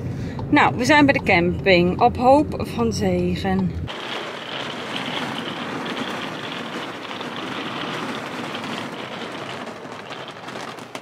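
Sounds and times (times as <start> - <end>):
heavy rain on an awning: 3.9 - 11.0.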